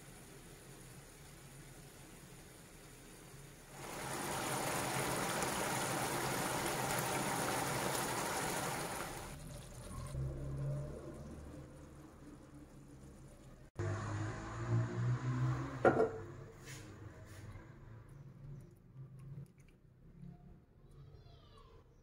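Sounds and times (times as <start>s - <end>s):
sauce sizzling in a frying pan: 0.0s - 14.3s.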